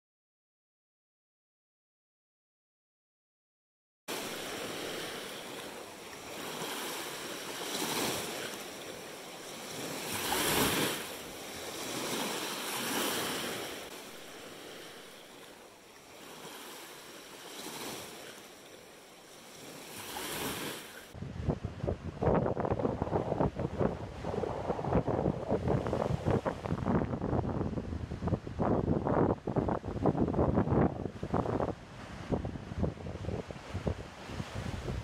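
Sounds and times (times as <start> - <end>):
lake waves lapping on sand: 4.1 - 21.2, 31.1 - 35.0.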